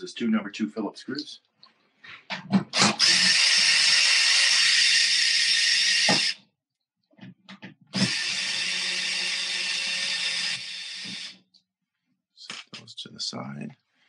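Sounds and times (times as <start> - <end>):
cordless drill whining: 2.8 - 6.4, 7.9 - 11.4.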